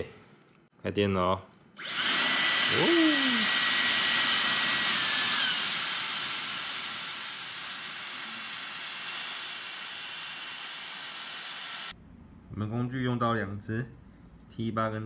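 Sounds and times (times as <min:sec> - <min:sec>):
hair dryer running: 0:01.8 - 0:12.0.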